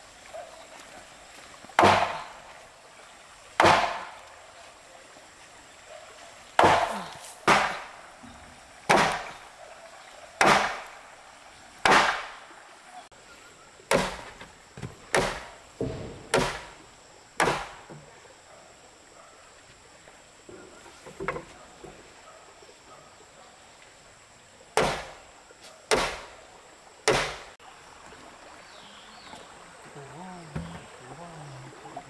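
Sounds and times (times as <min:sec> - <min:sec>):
tool chopping into timber: 0:01.8 - 0:02.4, 0:03.6 - 0:04.2, 0:06.6 - 0:07.9, 0:08.9 - 0:09.4, 0:10.4 - 0:10.9, 0:11.8 - 0:12.4, 0:13.9 - 0:16.8, 0:17.4 - 0:18.0, 0:24.8 - 0:25.2, 0:25.9 - 0:26.3, 0:27.0 - 0:27.5.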